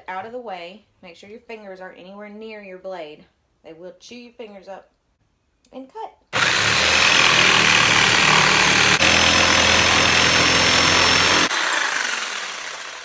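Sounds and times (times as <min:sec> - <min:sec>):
electric jigsaw cutting wood: 0:06.4 - 0:13.0.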